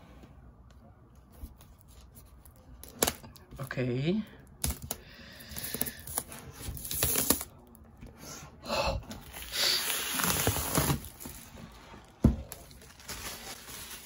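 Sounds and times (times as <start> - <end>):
plastic wrapping crinkling: 9.2 - 14.0.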